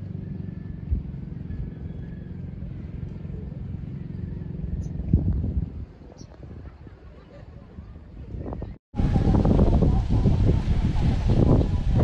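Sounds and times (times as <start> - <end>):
engine humming: 0.0 - 5.9.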